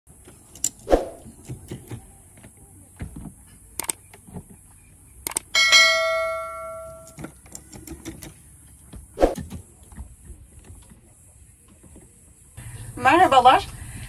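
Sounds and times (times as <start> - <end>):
bright metallic ring: 5.6 - 7.2.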